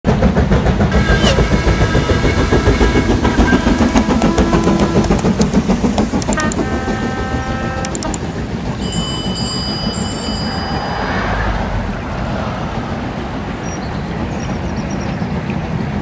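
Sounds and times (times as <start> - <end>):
steam train pulsing beat: 0.1 - 11.4
high ringing tones: 7.9 - 11.3.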